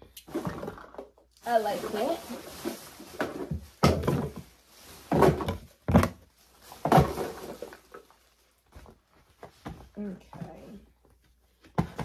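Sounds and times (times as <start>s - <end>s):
containers knocking and thumping: 0.2s - 2.1s, 2.7s - 4.5s, 5.1s - 6.2s, 6.8s - 7.9s, 11.6s - 12.0s.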